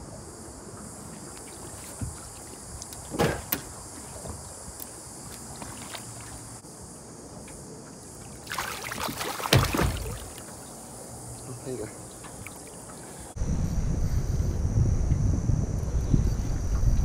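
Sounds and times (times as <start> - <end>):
water splashing: 0.0 - 6.6, 7.3 - 13.4.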